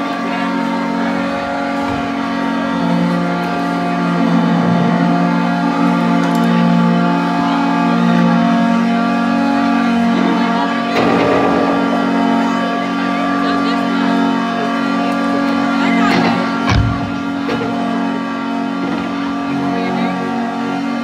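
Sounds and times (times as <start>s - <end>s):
rock band sustained chords: 10.9s - 15.2s.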